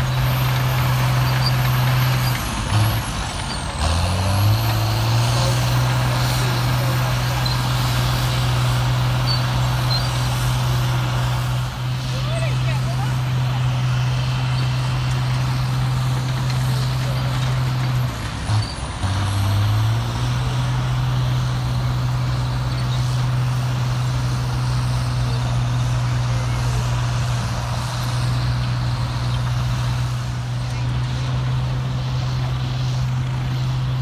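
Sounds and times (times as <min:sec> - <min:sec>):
excavator engine droning: 0:00.0 - 0:34.0.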